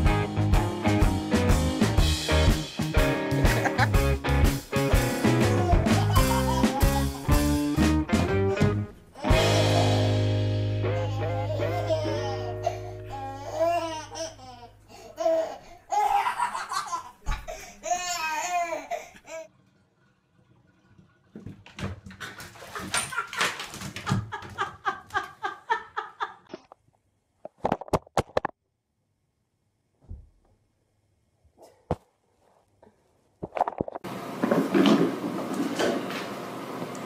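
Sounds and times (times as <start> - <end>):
toddler giggling: 3.5 - 3.9, 5.4 - 7.4, 11.0 - 19.5.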